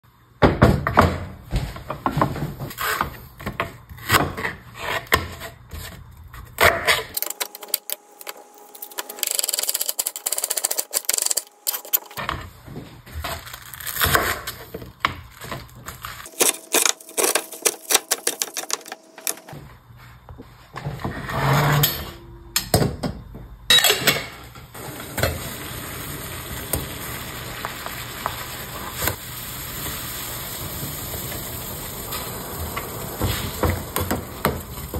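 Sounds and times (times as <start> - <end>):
broth boiling hiss: 24.8 - 34.9.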